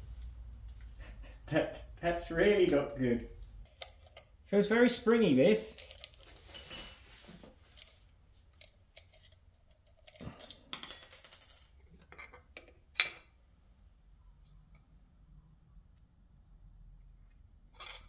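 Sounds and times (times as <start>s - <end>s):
small metallic clicks and scrapes: 5.7s - 6.6s, 7.6s - 10.7s, 17.2s - 18.0s
sharp metal clink: 6.6s - 7.2s.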